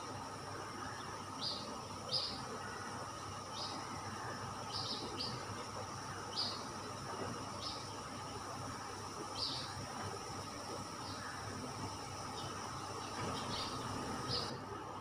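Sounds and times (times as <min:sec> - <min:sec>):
steady hiss: 0:00.0 - 0:15.0
small bird chirping: 0:12.3 - 0:14.5.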